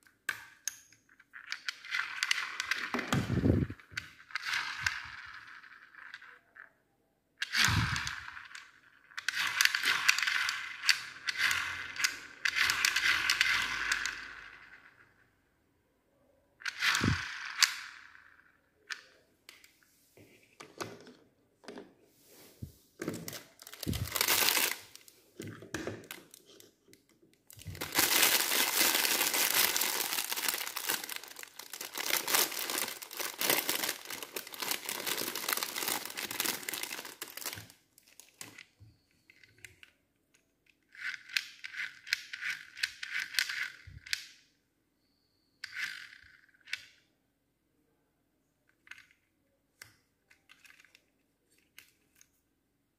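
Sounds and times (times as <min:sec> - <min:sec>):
plastic bag crinkling and tearing: 0:23.2 - 0:25.1, 0:27.5 - 0:38.5.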